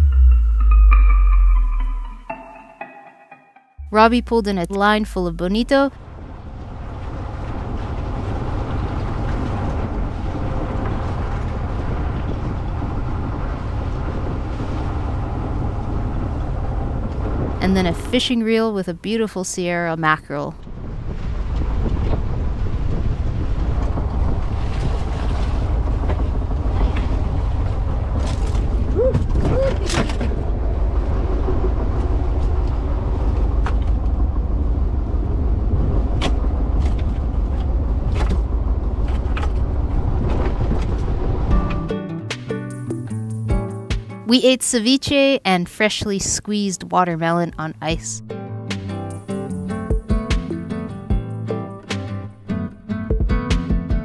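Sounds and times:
boat engine droning: 0.0 - 41.9
water rushing along hull: 5.5 - 41.8.

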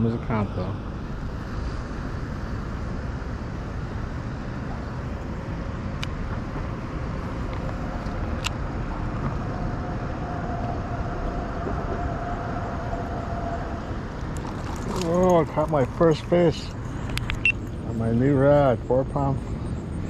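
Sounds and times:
road traffic rumble: 0.0 - 20.0
sharp clicks: 17.1 - 17.7.

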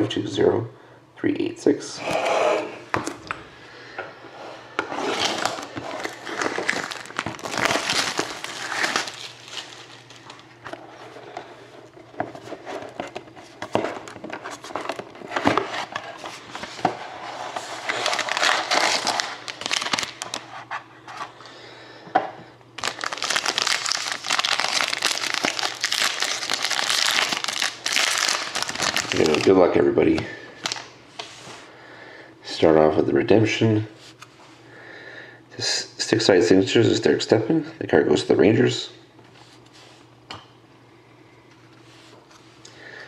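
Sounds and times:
plastic wrapping crinkling: 5.0 - 11.1, 12.3 - 20.6, 22.8 - 29.6, 30.6 - 30.9.

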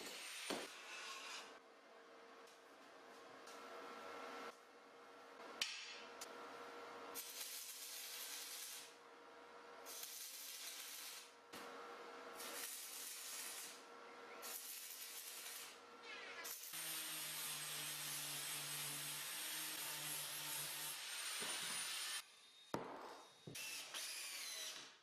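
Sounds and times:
welding arc frying and crackling: 7.1 - 9.0, 9.8 - 11.4, 12.4 - 13.8, 14.4 - 15.8.

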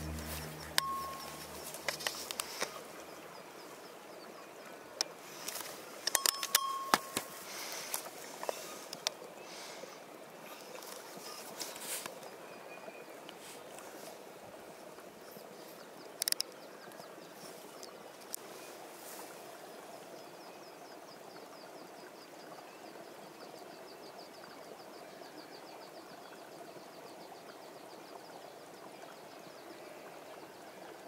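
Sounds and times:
sharp clicks: 6.0 - 7.3, 16.2 - 16.5.

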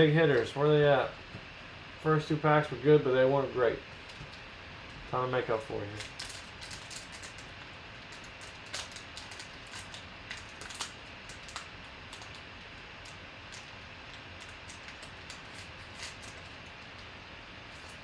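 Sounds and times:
foil wrapper crinkling and tearing: 5.9 - 17.1.

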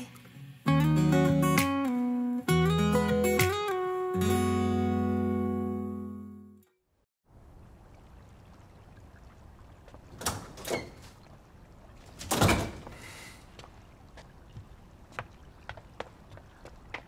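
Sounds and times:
light footsteps: 12.8 - 17.0.

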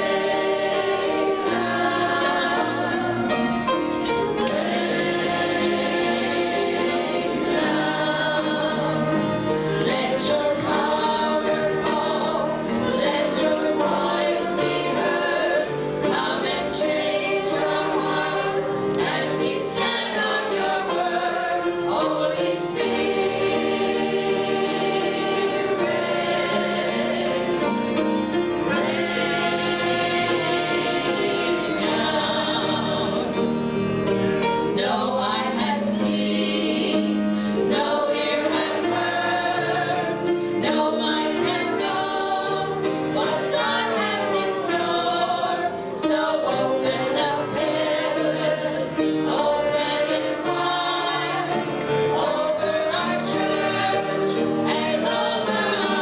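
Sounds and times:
women singing worship song: 9.8 - 27.4, 34.8 - 56.0.

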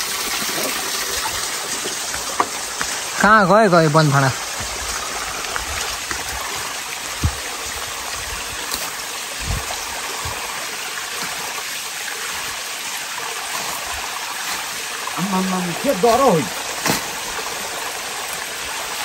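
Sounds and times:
stream rushing over rocks: 0.0 - 19.0
soft low thumps: 7.1 - 7.6.

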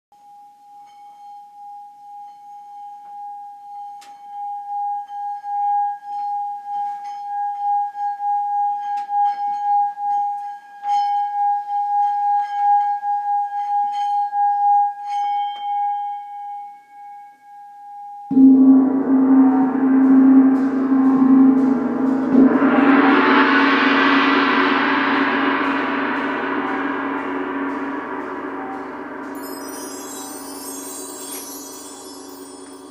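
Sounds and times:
singing bowl ringing tone: 0.2 - 32.9
large gong struck: 18.3 - 32.9.

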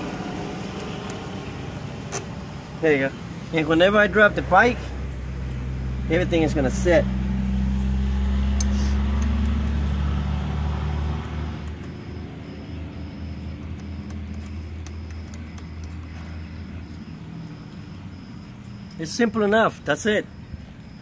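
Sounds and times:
vehicle engine running: 0.0 - 19.6
small metal parts clicking: 13.4 - 17.1.

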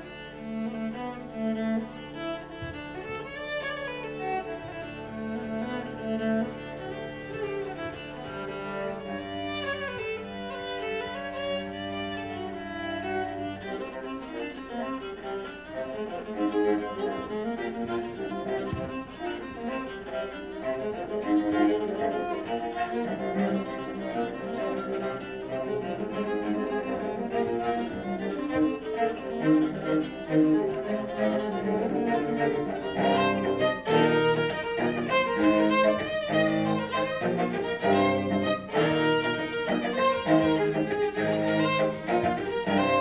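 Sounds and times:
viola playing bowed notes: 0.0 - 43.0
sharp taps: 2.6 - 3.8, 18.6 - 19.2.

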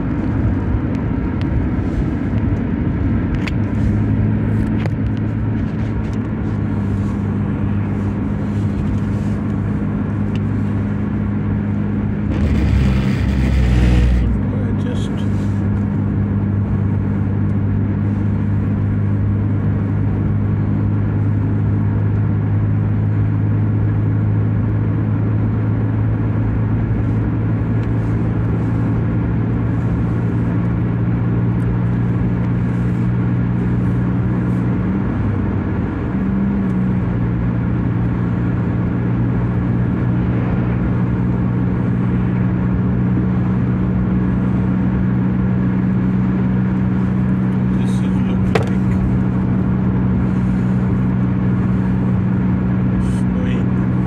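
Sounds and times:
car engine and road hum: 0.0 - 54.0.

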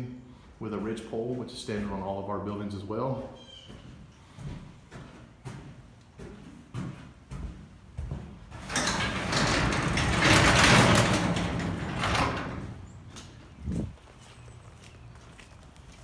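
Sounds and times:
garage door rumbling and rattling: 6.8 - 14.0.

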